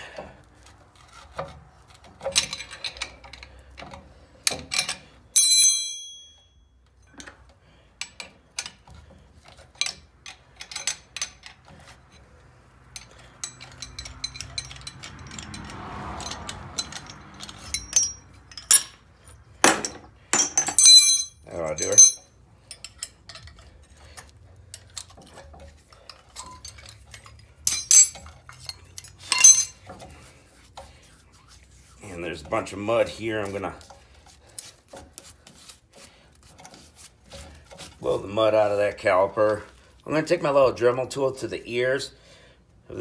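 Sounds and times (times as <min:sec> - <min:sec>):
ringing metallic clink: 0:05.4 - 0:06.8, 0:13.4 - 0:19.0, 0:20.3 - 0:23.2, 0:27.7 - 0:28.2, 0:29.3 - 0:29.8
ratchet clicking: 0:12.9 - 0:18.8.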